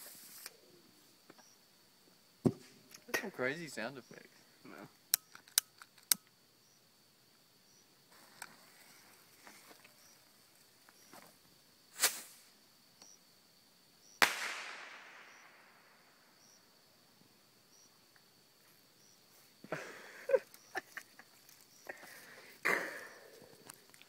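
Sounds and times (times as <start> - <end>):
loud echoing firework bang: 14.2 - 15.9
underwater firework crack: 14.2 - 16.0.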